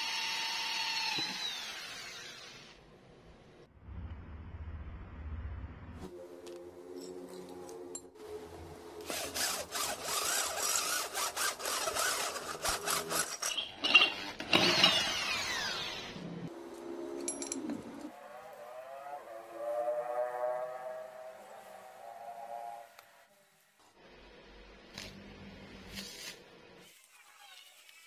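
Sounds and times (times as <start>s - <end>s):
electric drill grinding into metal: 0.0s - 2.8s, 9.0s - 16.3s.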